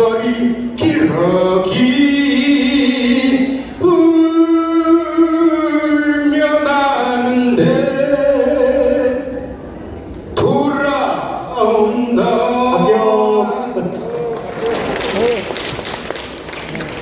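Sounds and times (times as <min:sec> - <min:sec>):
man singing unaccompanied: 0:00.0 - 0:09.5, 0:10.4 - 0:13.9.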